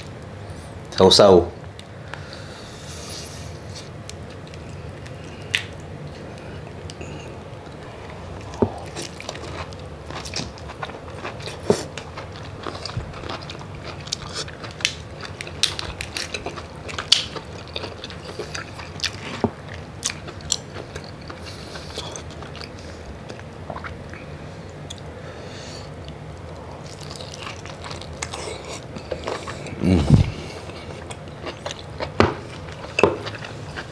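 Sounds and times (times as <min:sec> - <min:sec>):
chewing with wet smacks: 0:07.7 - 0:25.1, 0:26.0 - 0:33.9.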